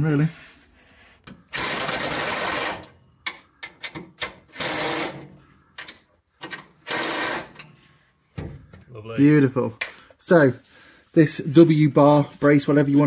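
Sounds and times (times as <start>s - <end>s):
clicks and knocks of metal: 5.8s - 6.8s.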